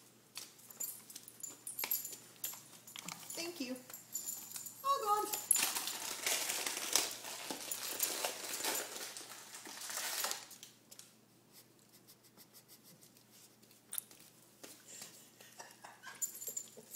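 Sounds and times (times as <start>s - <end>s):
crinkling rustling: 0.3s - 11.1s.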